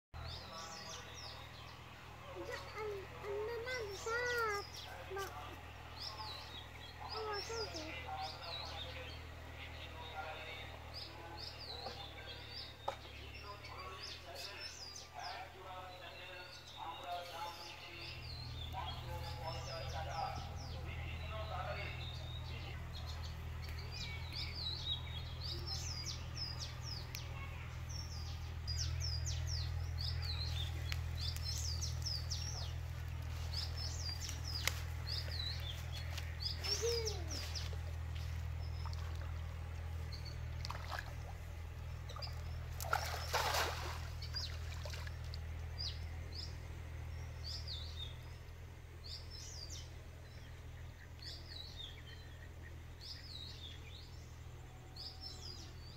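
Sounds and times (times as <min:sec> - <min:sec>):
small birds chirping: 0:00.2 - 0:55.9
steady low hum: 0:00.2 - 0:55.9
cast net splashing into water: 0:40.6 - 0:41.4, 0:42.1 - 0:45.4.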